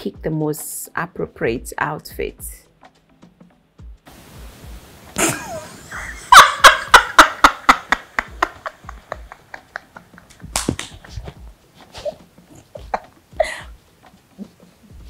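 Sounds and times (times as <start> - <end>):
woman laughing hard: 5.2 - 13.8.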